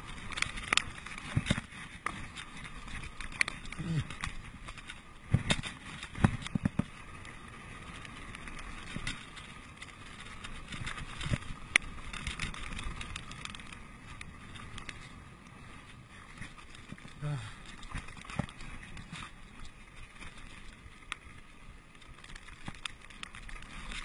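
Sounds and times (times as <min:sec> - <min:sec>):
bike clunking and rattling: 0:00.0 - 0:07.2, 0:07.9 - 0:15.1.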